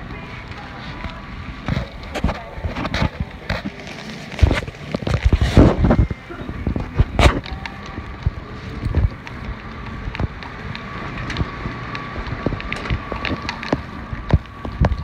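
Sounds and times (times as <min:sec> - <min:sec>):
wind noise on microphone: 0:04.4 - 0:15.0.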